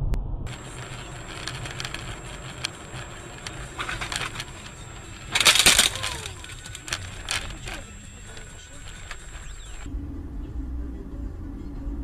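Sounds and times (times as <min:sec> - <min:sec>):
road rumble: 0:00.0 - 0:12.0
car crash: 0:00.5 - 0:09.9
clattering: 0:00.5 - 0:09.9
loud crunching burst: 0:00.5 - 0:09.9.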